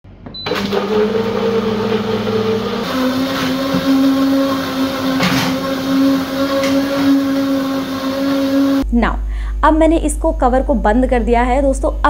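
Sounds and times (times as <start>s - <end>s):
blender motor whine: 0.4s - 8.9s.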